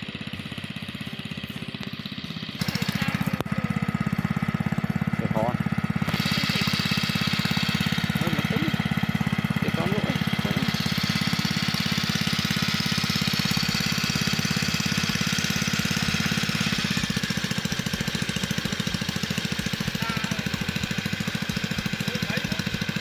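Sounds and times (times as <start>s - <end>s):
small engine running: 0.0s - 23.0s.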